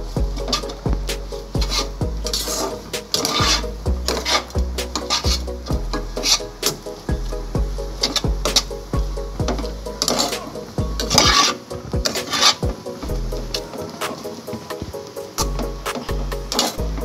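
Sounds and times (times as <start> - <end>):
background music with beat: 0.0 - 17.0
spatula scraping noodles in pot: 1.4 - 5.4, 9.9 - 12.6.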